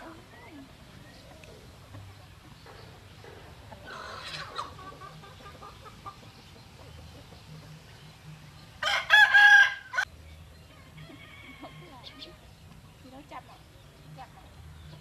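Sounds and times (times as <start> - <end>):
chicken clucking and squawks: 0.0 - 10.1
rooster crowing: 8.8 - 10.1.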